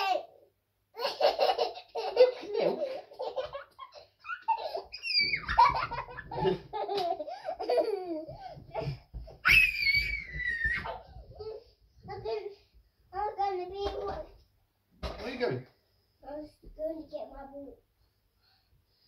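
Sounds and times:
toddler laughing: 1.0 - 9.0
toddler high squeal: 4.9 - 5.6, 9.4 - 11.0.

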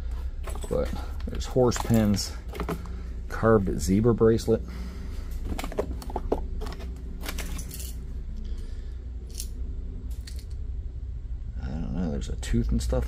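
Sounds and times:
steady low hum: 0.0 - 13.0
jewelry clinking and rattling: 0.4 - 1.0, 5.5 - 8.1, 9.3 - 10.5.

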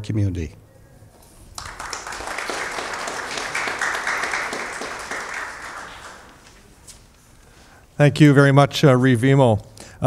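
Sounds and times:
audience applauding: 1.2 - 6.7.

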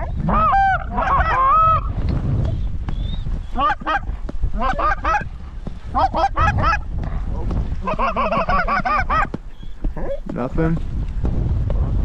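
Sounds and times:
geese honking and clucking: 0.0 - 1.9, 3.5 - 5.3, 5.9 - 6.9, 7.8 - 10.3
wind rumbling on microphone: 0.0 - 12.0.

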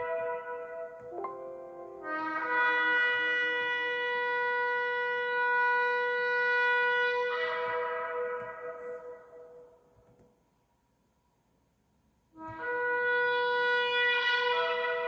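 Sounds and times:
shofar blast: 0.0 - 1.2, 2.0 - 9.8, 12.4 - 15.0.

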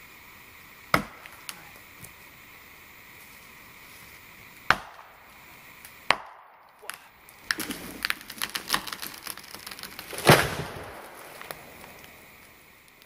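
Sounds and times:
axe chopping tree: 0.9 - 1.6, 4.7 - 5.2, 6.0 - 11.5
tree trunk cracking and splintering: 6.1 - 13.0
tree crashing to ground: 6.9 - 12.3.

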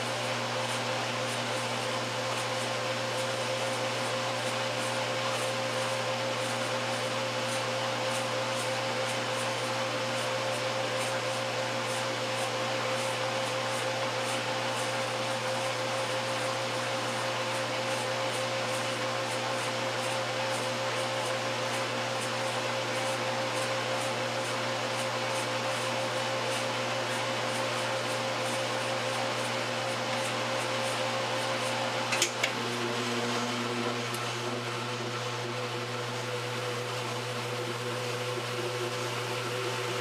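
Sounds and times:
washing machine motor humming: 21.2 - 40.0.

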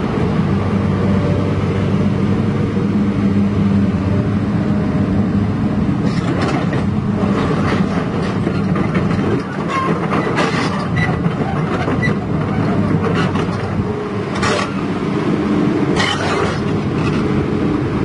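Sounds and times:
diesel engine running: 0.0 - 18.0
crawler tracks clattering: 6.0 - 14.9, 15.9 - 17.4
metal clanks and squeaks: 6.0 - 14.9, 16.0 - 17.3.

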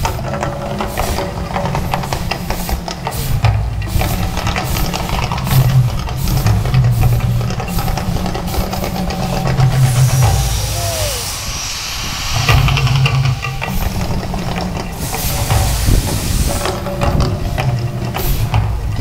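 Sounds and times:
deep pulsing rumble: 3.4 - 19.0
fireball rushing hiss: 6.2 - 17.0.

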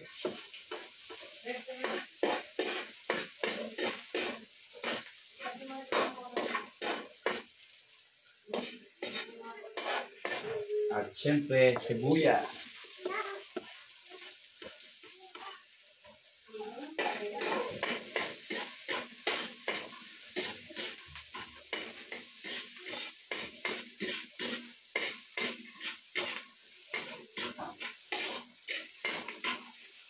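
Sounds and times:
food sizzling in oil: 0.0 - 30.0
metal ladle scraping in a wok: 1.8 - 5.1, 5.9 - 7.5, 8.5 - 10.6, 17.0 - 30.0.

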